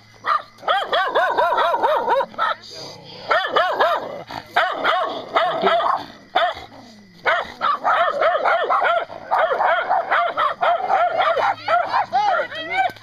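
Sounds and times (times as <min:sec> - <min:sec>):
small dog yapping: 0:07.2 - 0:13.0.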